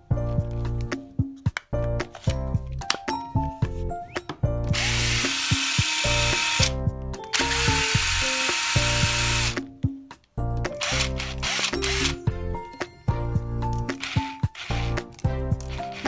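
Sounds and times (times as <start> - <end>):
background music: 0.0 - 16.0
impact driver spinning: 4.8 - 6.7, 7.3 - 9.6, 10.8 - 12.2, 14.0 - 15.0.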